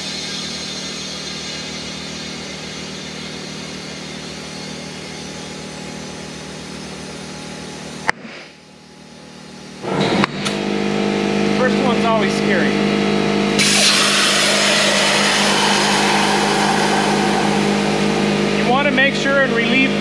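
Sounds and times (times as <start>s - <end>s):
air compressor running: 0.0s - 20.0s
compressed air hissing: 13.6s - 19.1s.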